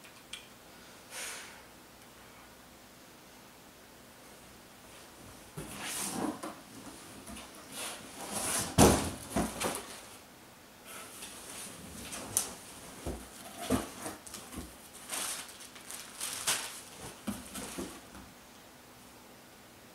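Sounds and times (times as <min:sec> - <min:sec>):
cardboard box rustling and scraping: 0:07.4 - 0:10.0, 0:13.0 - 0:15.6
box knocks: 0:08.6 - 0:09.8.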